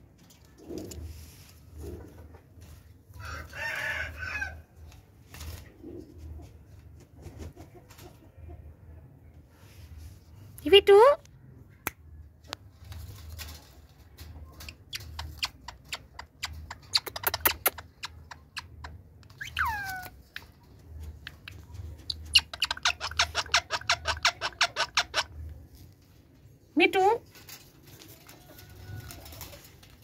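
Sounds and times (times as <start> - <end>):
parakeet chattering calls: 22.1 - 25.4
parakeet squawk: 22.3 - 25.4.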